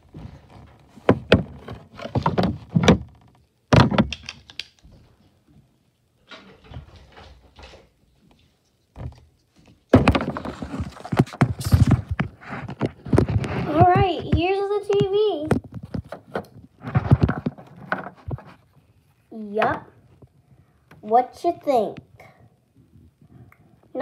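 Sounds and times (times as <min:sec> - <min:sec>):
knocks and thumps of handling: 0:00.0 - 0:05.0, 0:08.9 - 0:18.8.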